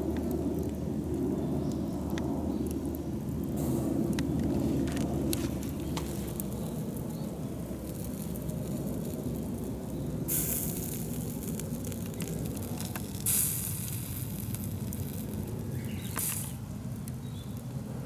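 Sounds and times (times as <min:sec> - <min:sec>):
clams sizzling over campfire: 0:00.0 - 0:18.0
loud hisses: 0:05.4 - 0:16.9.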